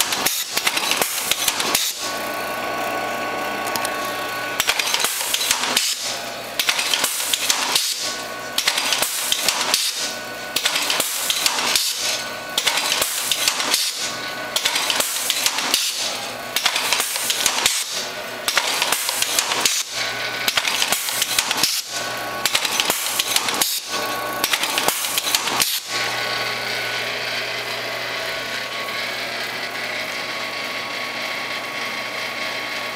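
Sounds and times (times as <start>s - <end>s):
machine clattering and clicking: 0.0s - 2.2s, 3.6s - 26.2s
steady machine hum: 0.0s - 32.9s.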